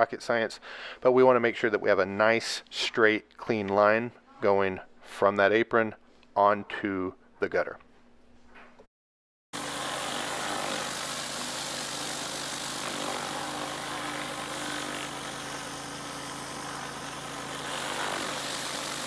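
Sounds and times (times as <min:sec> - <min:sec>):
pressure washer engine running: 0:09.6 - 0:19.0
water spraying on concrete: 0:09.6 - 0:19.0.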